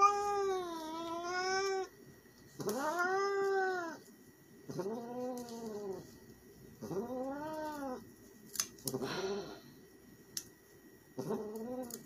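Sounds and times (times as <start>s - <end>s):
cat yowling: 0.0s - 1.9s, 2.6s - 4.0s.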